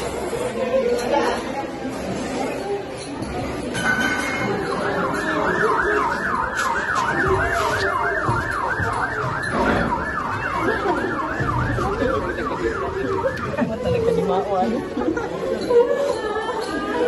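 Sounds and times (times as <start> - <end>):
ambulance siren yelping: 4.5 - 15.0.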